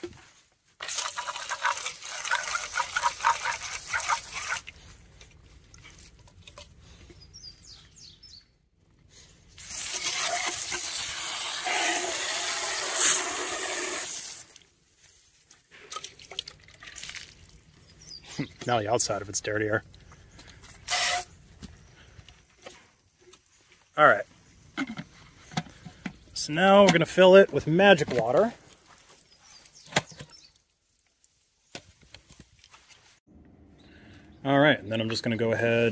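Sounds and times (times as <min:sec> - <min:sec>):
hose spraying water into jar: 0:00.8 - 0:04.9, 0:09.6 - 0:14.7, 0:20.8 - 0:21.4.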